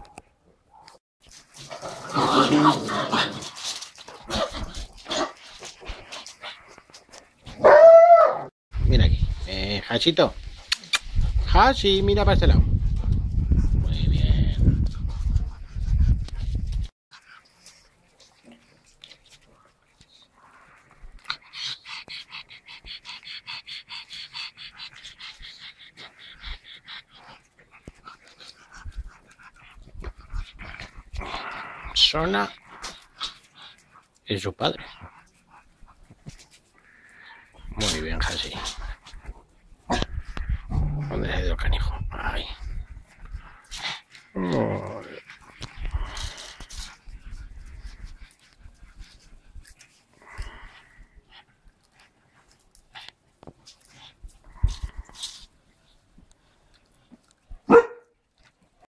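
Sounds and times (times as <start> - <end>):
dog yelping: 7.6 - 8.5, 57.7 - 58.0
dogs vocalising while playing: 17.2 - 41.2, 42.6 - 58.5.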